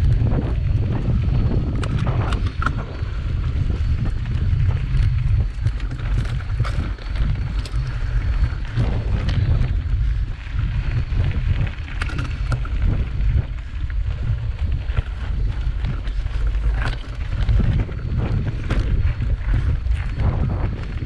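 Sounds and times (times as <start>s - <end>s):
bike rattling over stones: 0.0s - 21.0s
wind buffeting microphone: 0.0s - 21.0s.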